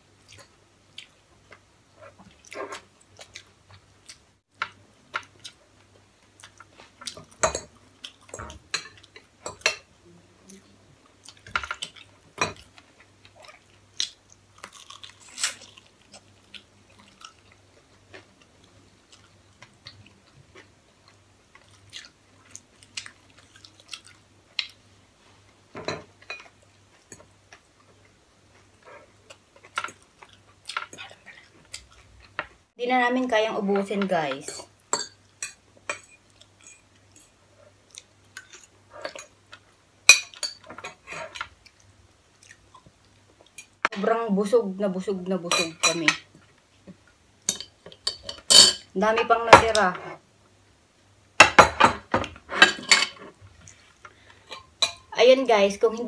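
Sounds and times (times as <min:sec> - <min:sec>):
chewing: 0:00.2 - 0:04.2, 0:10.5 - 0:24.8, 0:26.4 - 0:32.4, 0:40.8 - 0:43.8
cutlery clinking on plates: 0:51.4 - 0:53.4.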